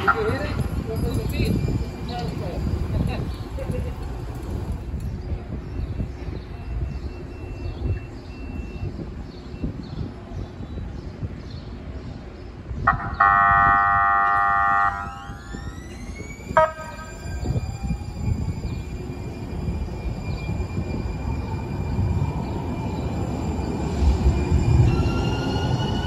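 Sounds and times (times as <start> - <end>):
tram horn blast: 12.9 - 15.6, 16.6 - 17.2.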